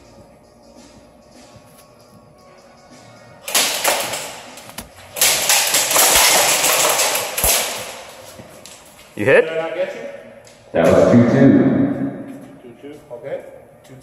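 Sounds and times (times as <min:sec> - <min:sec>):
faint background music: 0:00.0 - 0:14.0
airsoft guns firing in bursts: 0:05.2 - 0:08.1.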